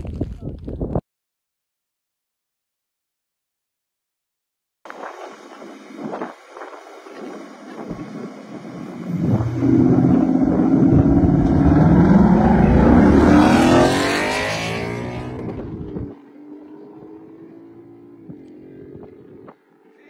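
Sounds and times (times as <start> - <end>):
car engines revving and accelerating: 6.2 - 20.0.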